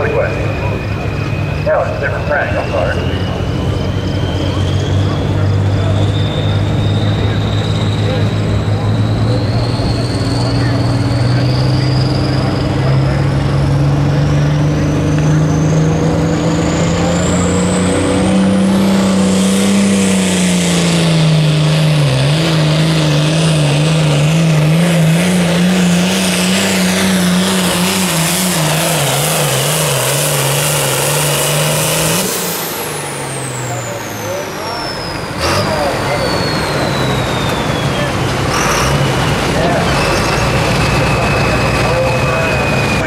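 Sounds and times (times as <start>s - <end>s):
diesel tractor engine under load: 0.0s - 43.0s
turbo whine: 0.0s - 43.0s.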